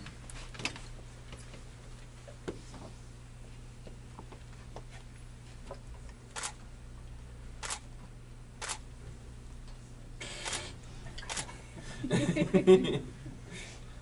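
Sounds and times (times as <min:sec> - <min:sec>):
faint room hum: 0:00.0 - 0:14.0
camera shutter clicks: 0:06.3 - 0:06.6, 0:07.6 - 0:07.8, 0:08.6 - 0:08.8, 0:10.2 - 0:11.5.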